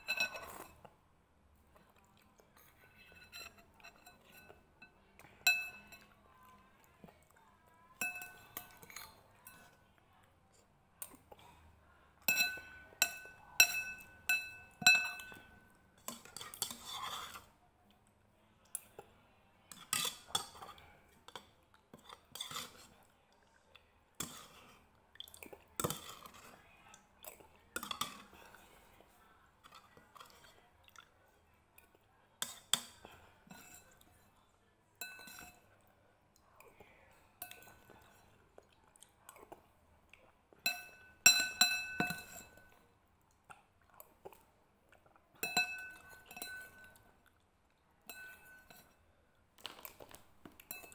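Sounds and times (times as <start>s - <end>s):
spoon clinking on ceramic bowl: 5.4s - 6.1s, 8.0s - 9.7s, 12.3s - 17.2s, 35.0s - 35.6s, 40.6s - 42.8s, 45.4s - 47.0s, 48.0s - 49.0s, 50.6s - 50.9s.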